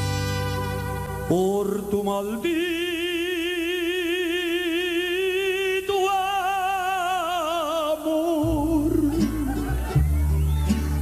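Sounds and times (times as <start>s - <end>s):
man singing a long note: 1.2s - 9.4s.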